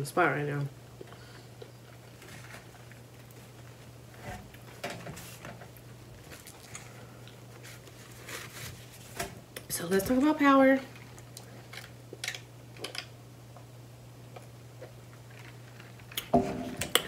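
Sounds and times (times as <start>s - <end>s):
person chewing food: 0.9s - 3.9s.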